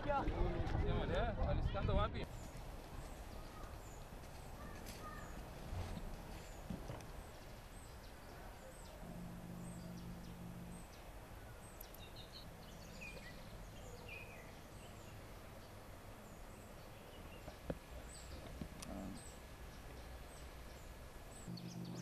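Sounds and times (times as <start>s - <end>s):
birds calling: 2.2s - 22.0s
low steady hum: 5.4s - 22.0s.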